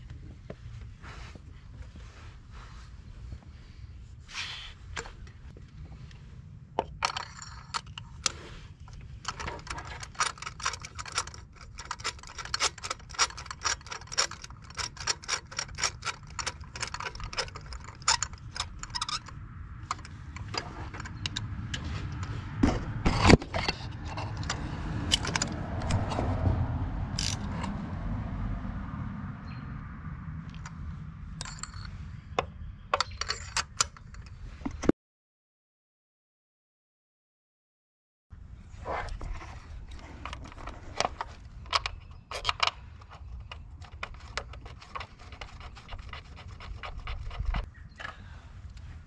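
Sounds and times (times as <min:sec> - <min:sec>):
ratchet clicks and scrapes: 0:07.0 - 0:22.4, 0:23.0 - 0:27.8, 0:38.9 - 0:47.7
low rumble: 0:19.2 - 0:32.9.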